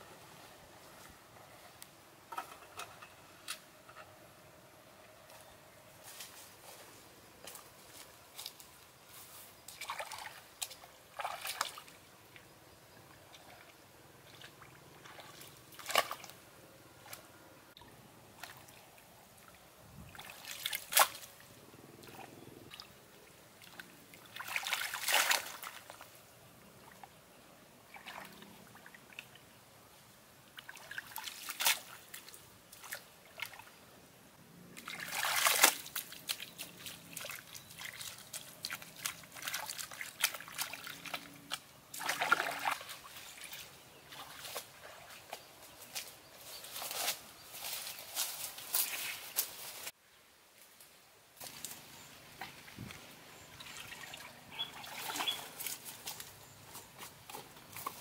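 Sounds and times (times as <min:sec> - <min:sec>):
faint water trickling: 0:04.2 - 0:49.3, 0:51.4 - 0:58.0.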